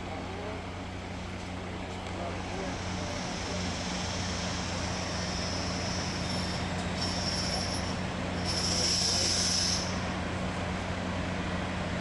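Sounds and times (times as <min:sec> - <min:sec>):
freight train rumbling past: 0:00.0 - 0:12.0
train wheels squealing on rails: 0:02.5 - 0:10.2.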